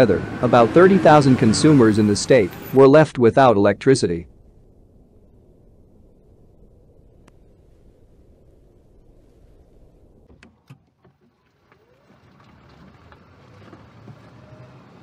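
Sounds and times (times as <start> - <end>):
car interior road rumble: 4.3 - 15.0.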